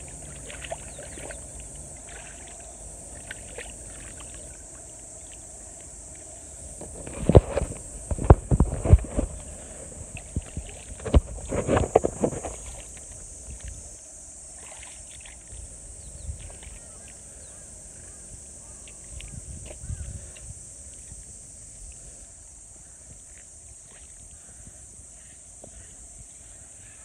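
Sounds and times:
mud squelching and splashing: 0.0s - 5.4s
steady high hiss: 0.0s - 27.0s.

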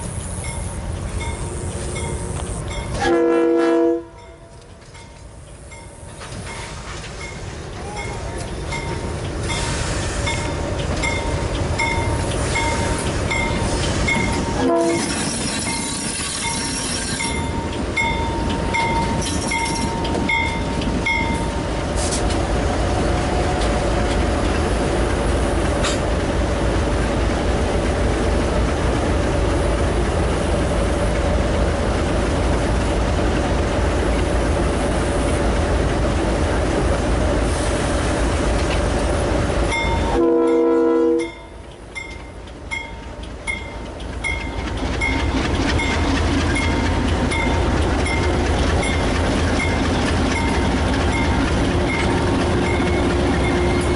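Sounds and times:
diesel locomotive engines rumbling: 0.0s - 53.9s.

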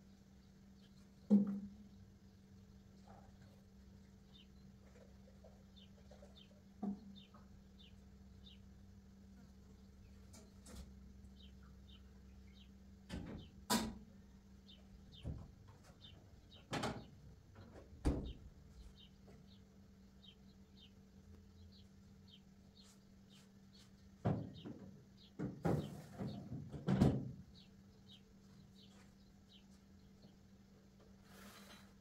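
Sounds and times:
cupboard doors and dishes knocking: 25.4s - 27.4s.

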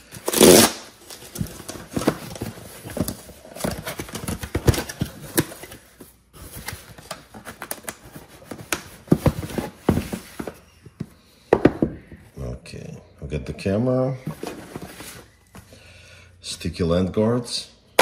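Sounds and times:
cardboard rustling and scraping: 0.1s - 10.8s, 14.2s - 15.5s
small boxes knocking and sliding: 8.3s - 12.2s.

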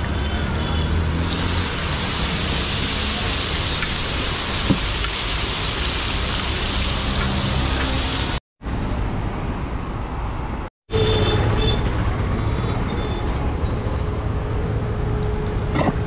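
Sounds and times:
street traffic noise: 0.0s - 16.0s
curry sizzling on a griddle: 0.1s - 8.4s.

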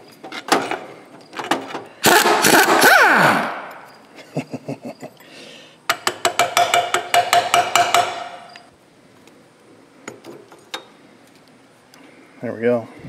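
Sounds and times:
impact wrench hammer clacking: 5.9s - 8.5s.

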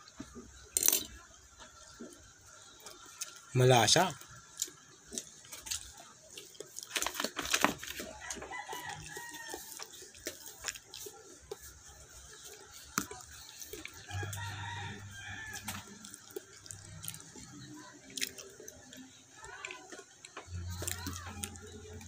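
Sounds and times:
rooster crowing: 8.0s - 10.0s, 14.0s - 16.2s.

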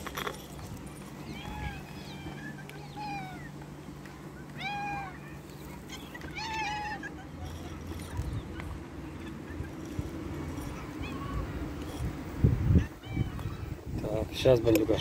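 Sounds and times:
cat meowing: 1.3s - 3.5s, 4.6s - 5.4s, 6.3s - 7.8s, 10.7s - 11.6s, 12.8s - 13.7s.

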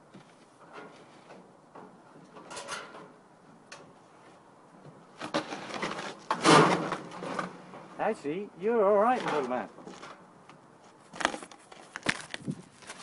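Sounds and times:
sheet metal scraping and rattling: 5.2s - 7.9s.

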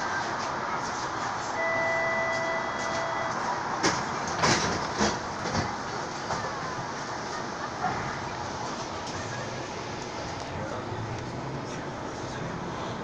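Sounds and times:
streetcar running hum: 0.0s - 13.0s
two-pitch beep: 1.6s - 3.4s.

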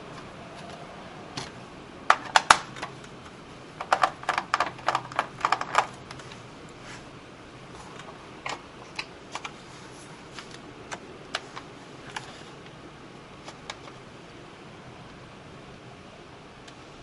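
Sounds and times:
screwdriver and screws clicking on plastic: 3.8s - 6.3s.

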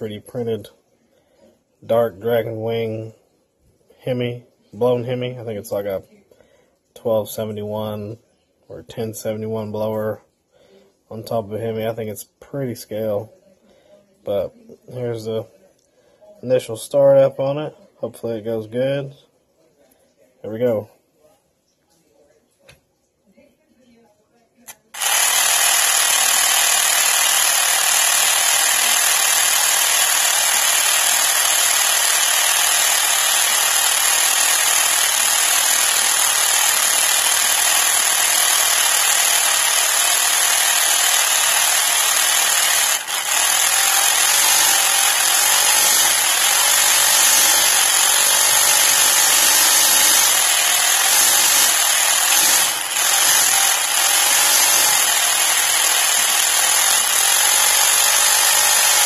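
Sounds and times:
motor-driven belt whirring: 24.7s - 59.0s.

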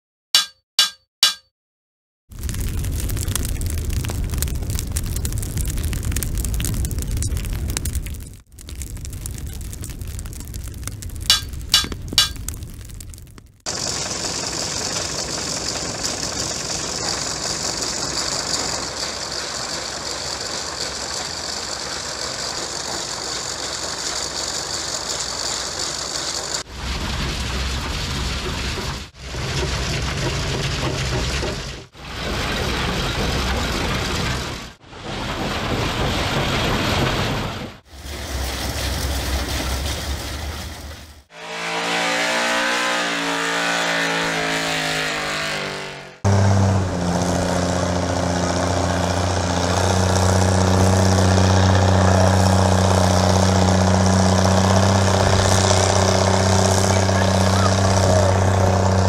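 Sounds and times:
heavy low rumble: 2.4s - 20.8s, 26.4s - 41.7s, 46.2s - 59.0s
machinery clattering: 9.6s - 12.6s
pitched engine drone: 13.7s - 34.4s, 41.3s - 59.0s.

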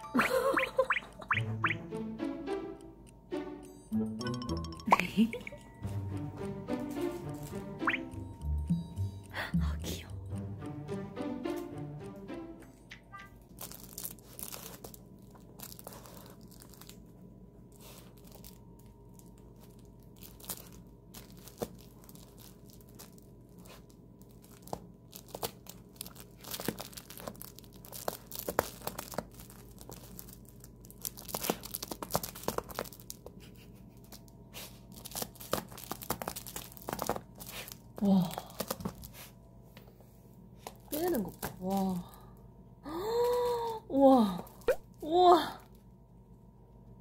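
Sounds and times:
fabric toy crinkling and rustling: 13.1s - 39.4s, 40.6s - 42.2s, 44.4s - 44.9s.

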